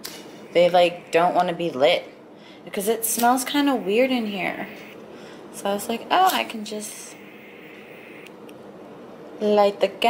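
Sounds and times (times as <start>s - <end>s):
lighter gas hissing: 0.0s - 1.8s, 6.3s - 8.3s.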